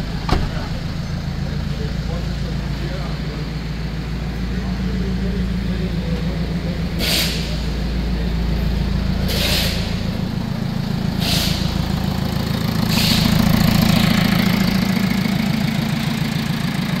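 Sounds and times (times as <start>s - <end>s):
diesel engine idling: 0.0s - 17.0s
brief hissing noises: 7.0s - 7.6s, 9.3s - 9.9s, 11.2s - 11.7s, 12.9s - 13.4s.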